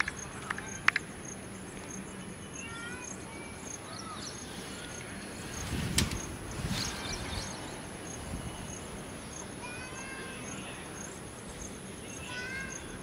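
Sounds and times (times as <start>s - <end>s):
insects chirping: 0.0s - 13.0s.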